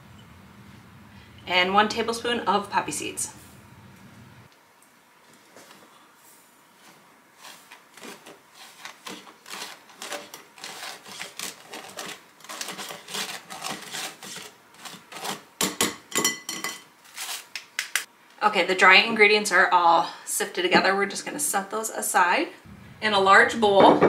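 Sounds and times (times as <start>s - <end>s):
spatula scraping metal mesh sieve: 7.4s - 15.5s
knocks: 23.8s - 24.0s.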